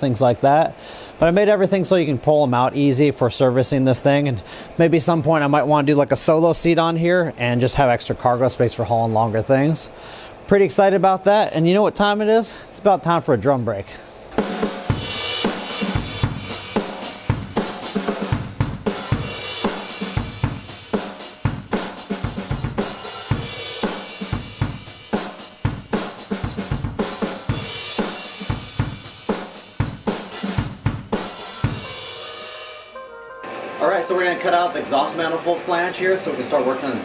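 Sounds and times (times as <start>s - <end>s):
acoustic drum kit beat: 14.3s - 35.4s
crashing cymbals: 14.3s - 35.7s.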